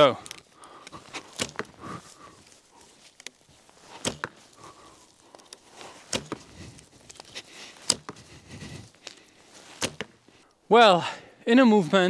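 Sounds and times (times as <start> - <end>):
footsteps on frosty grass: 0.0 - 10.4
bowstring snapping: 0.2 - 1.8, 2.4 - 8.2, 8.9 - 10.4
arrow knocking: 1.2 - 1.8, 3.9 - 4.4, 6.0 - 6.5, 7.8 - 8.2, 9.8 - 10.2.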